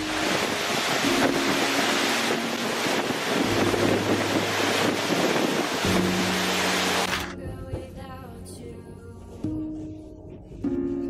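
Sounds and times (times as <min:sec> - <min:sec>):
hurricane-force wind: 0:00.0 - 0:07.2
wind buffeting microphone: 0:00.0 - 0:07.2
driving rain: 0:00.0 - 0:07.3
background music of held notes: 0:00.0 - 0:11.0.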